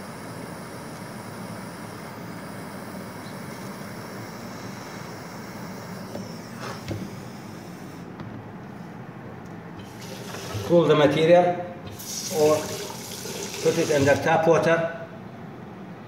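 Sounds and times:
gas torch flame hissing: 0:00.0 - 0:08.1, 0:09.8 - 0:11.0, 0:11.9 - 0:14.3.

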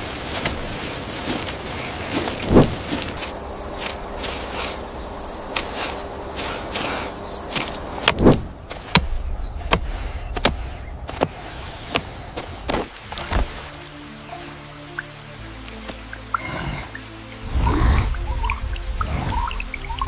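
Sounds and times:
sharp irregular knocks and thuds: 0:02.3 - 0:03.3, 0:07.5 - 0:13.7.

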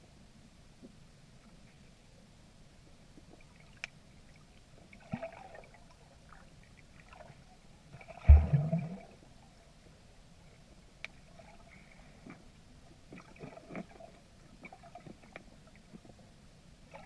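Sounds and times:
muffled underwater river: 0:00.0 - 0:17.0
low thud with rumble: 0:08.3 - 0:09.0.

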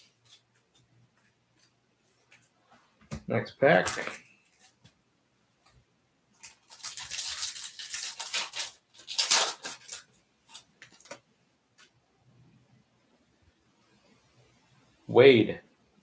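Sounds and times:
foil wrapper crinkling and tearing: 0:06.4 - 0:11.2.

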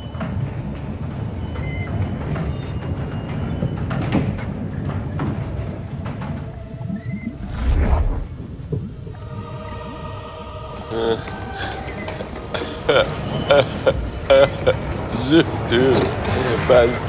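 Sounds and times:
low mechanical rumble: 0:06.6 - 0:15.1.

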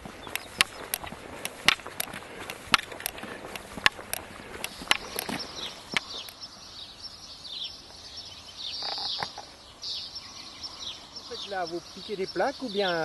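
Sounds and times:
sharp taps: 0:00.0 - 0:06.3
birds chirping: 0:00.0 - 0:13.0.

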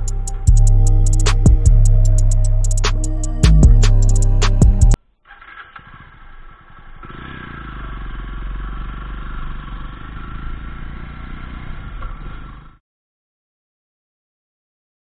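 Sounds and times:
background music: 0:00.0 - 0:05.0
motorcycle engine riding off: 0:00.0 - 0:12.8.

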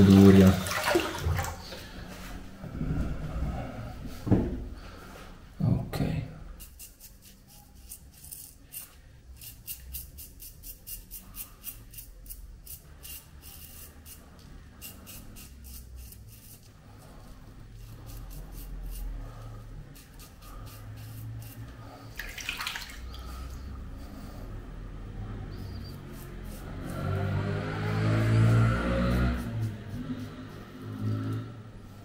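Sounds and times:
water splashing in sink: 0:00.0 - 0:01.9, 0:22.1 - 0:23.4
razor scraping stubble: 0:06.6 - 0:21.8, 0:25.6 - 0:31.5.

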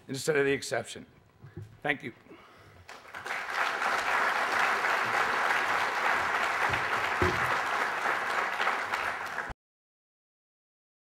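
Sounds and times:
audience applauding: 0:02.9 - 0:09.6.

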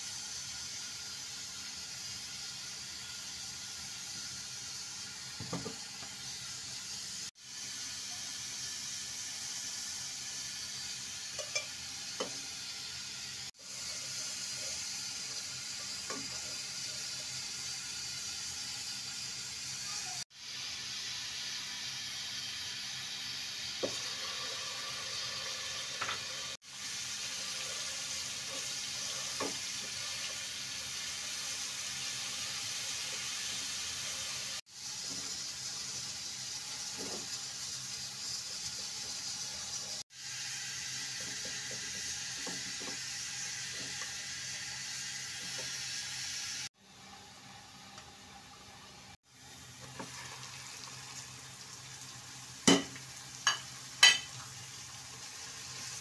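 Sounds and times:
oil sizzling in a pan: 0:00.0 - 0:56.0.

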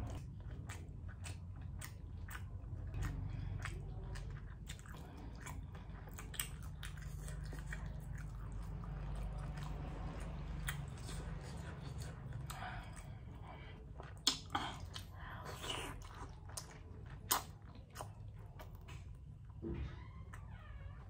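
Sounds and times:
person chewing food: 0:00.0 - 0:19.6.

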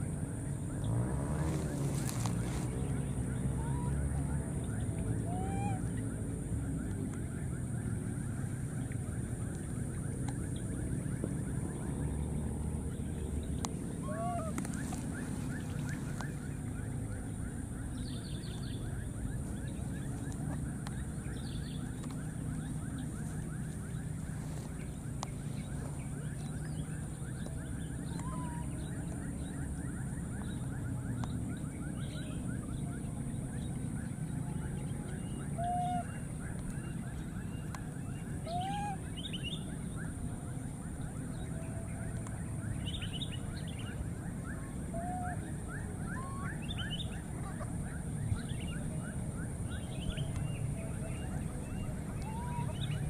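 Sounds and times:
animal calls: 0:14.0 - 0:16.1, 0:38.4 - 0:39.2.

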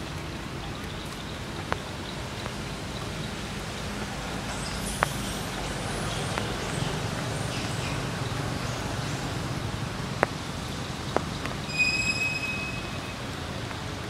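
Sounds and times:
rain on leaves: 0:00.0 - 0:14.0
water drops ticking: 0:00.1 - 0:11.8
faint high chirps: 0:11.6 - 0:13.4.

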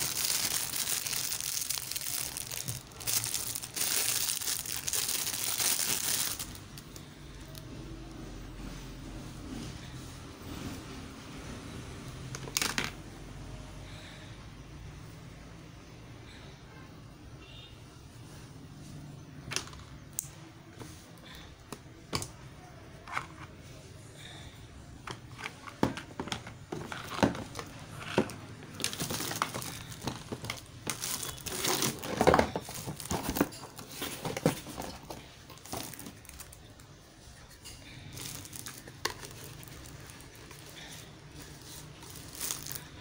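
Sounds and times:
plastic wrapping crinkling: 0:00.0 - 0:07.6, 0:26.6 - 0:36.9, 0:38.1 - 0:43.0.

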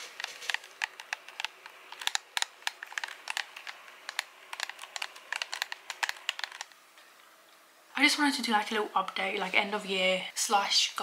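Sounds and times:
controller buttons clicking: 0:00.1 - 0:06.8.

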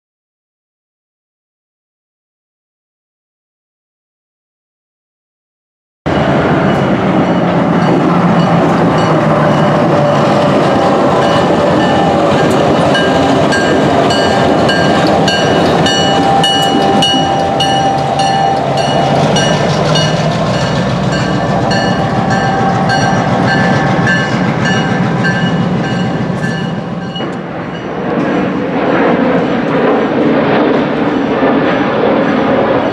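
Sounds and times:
diesel locomotive engine running: 0:06.1 - 0:32.9
train wheels clicking over rail joints: 0:06.3 - 0:28.6.

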